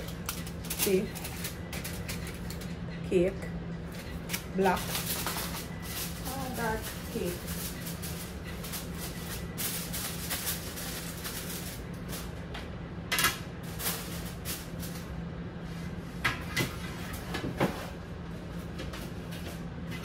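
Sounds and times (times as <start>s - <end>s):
steady low hum: 0.0s - 20.0s
kitchen knocks and clatters: 16.2s - 18.0s.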